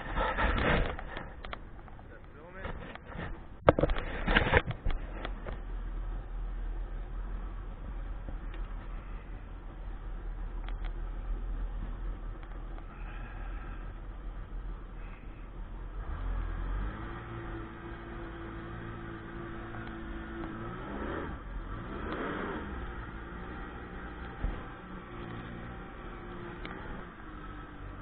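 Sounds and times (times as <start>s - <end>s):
wind: 0.0s - 28.0s
watercraft engine revving: 15.0s - 28.0s.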